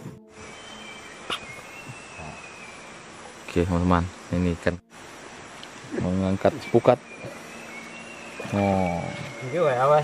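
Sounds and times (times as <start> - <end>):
high-pitched insect tone: 0.2 - 3.6, 6.2 - 10.0.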